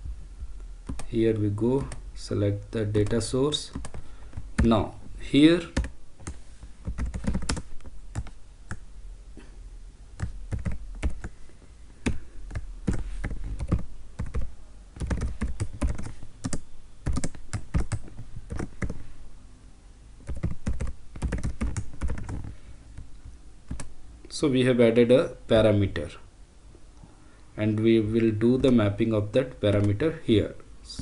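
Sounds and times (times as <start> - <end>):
computer keyboard typing: 0.8 - 1.1, 1.8 - 2.0, 3.0 - 4.8, 5.7 - 8.8, 10.2 - 11.3, 12.0 - 19.0, 20.2 - 23.1, 23.7 - 23.9.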